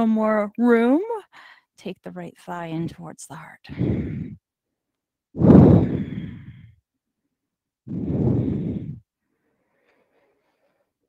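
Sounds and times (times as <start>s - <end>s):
woman breathing deeply: 3.7s - 4.5s, 5.4s - 6.8s, 7.9s - 10.1s.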